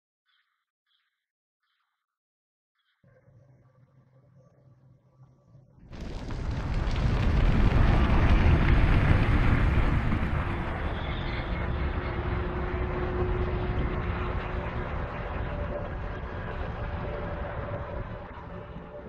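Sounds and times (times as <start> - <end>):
fire flaring up: 5.9 - 18.6.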